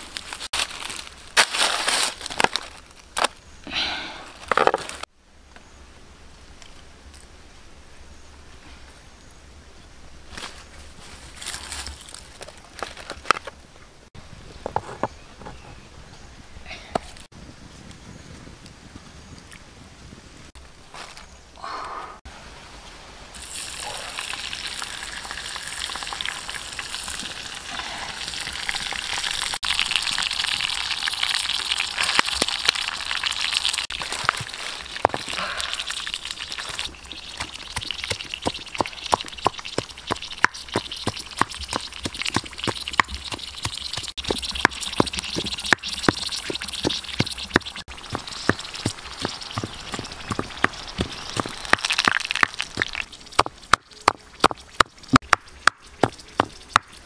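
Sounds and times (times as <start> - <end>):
hot oil sizzling in a pan: 23.4 - 35.1, 35.8 - 53.5.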